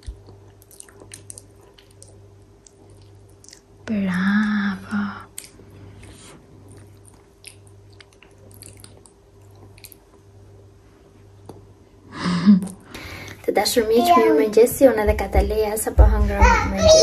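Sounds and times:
toddler chewing food: 0.0s - 3.8s, 5.2s - 10.3s.

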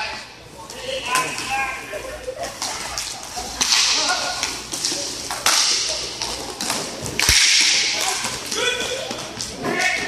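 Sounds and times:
hockey sticks clacking on puck: 2.4s - 10.0s.

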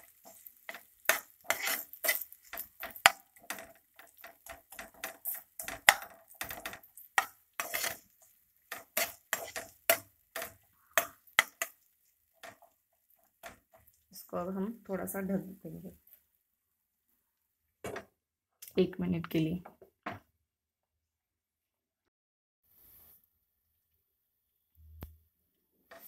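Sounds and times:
spatula scraping frying pan: 0.0s - 14.1s.

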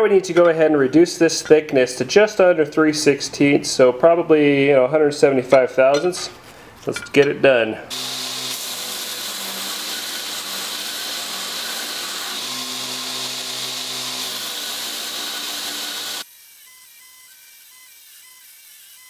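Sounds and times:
belt grinder grinding steel: 7.9s - 19.0s.

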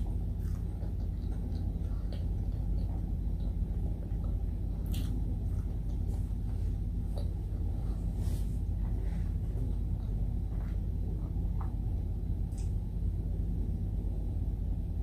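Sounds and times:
chewing and mouth sounds: 0.0s - 12.8s
steady low rumble: 0.0s - 15.0s.

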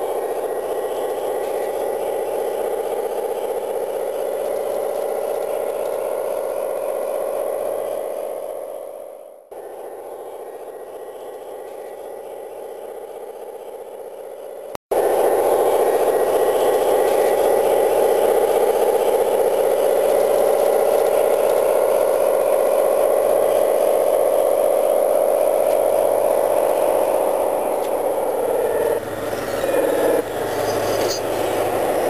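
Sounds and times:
model train whirring and rattling: 0.0s - 32.0s.

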